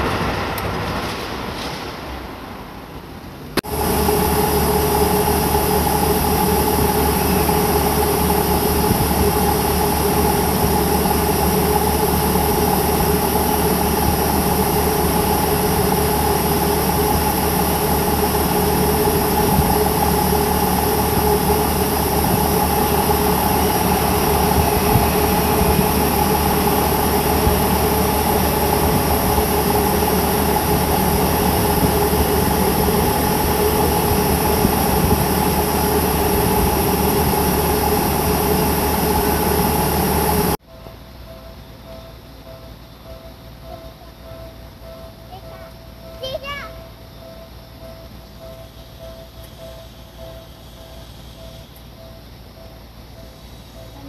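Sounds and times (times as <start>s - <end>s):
level crossing warning bell: 40.7s - 54.0s.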